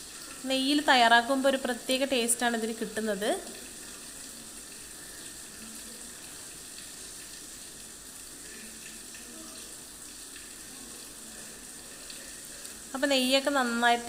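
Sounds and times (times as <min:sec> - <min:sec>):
mixture sizzling in a frying pan: 0:00.0 - 0:14.0.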